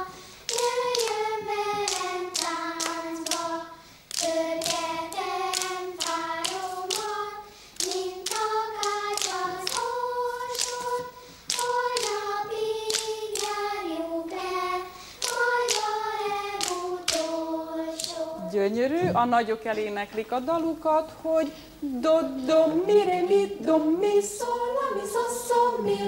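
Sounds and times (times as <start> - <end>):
clapped rhythm: 0.0 - 18.4
children singing in unison: 0.0 - 18.6, 22.4 - 26.0.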